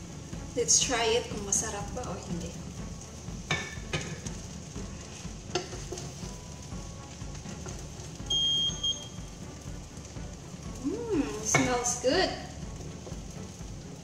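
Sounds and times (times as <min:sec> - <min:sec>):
faint sizzle: 0:00.0 - 0:14.0
spatula stirring rice in pot: 0:01.6 - 0:08.6, 0:09.3 - 0:14.0
high electronic beep: 0:08.3 - 0:09.1.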